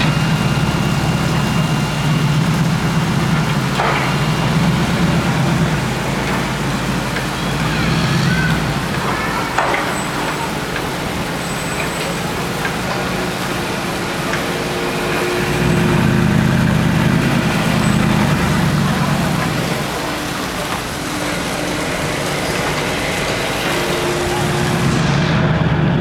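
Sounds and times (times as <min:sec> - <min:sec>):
street noise: 0:00.0 - 0:26.0
car engine low rumble: 0:15.0 - 0:26.0.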